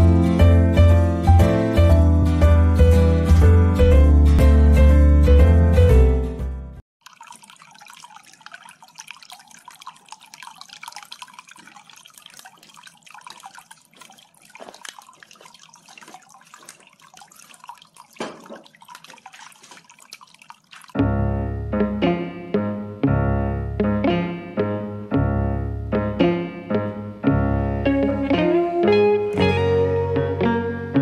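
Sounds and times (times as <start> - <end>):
water splashing and trickling: 6.9 - 21.2.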